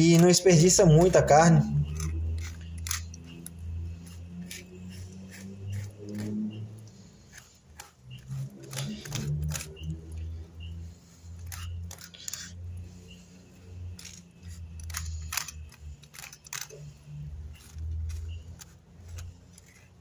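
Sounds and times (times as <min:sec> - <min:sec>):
knife scraping fish bones: 0:01.8 - 0:10.0, 0:11.3 - 0:12.6, 0:13.8 - 0:20.0.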